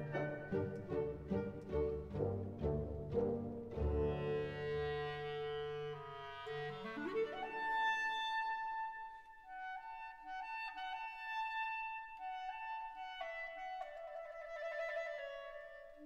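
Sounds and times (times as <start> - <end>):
instrumental background music: 0.0 - 6.7.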